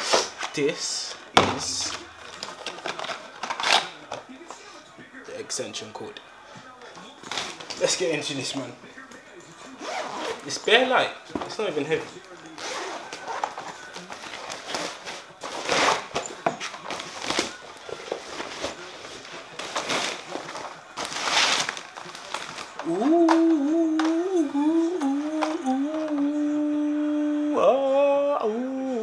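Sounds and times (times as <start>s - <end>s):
man humming: 22.8s - 29.0s.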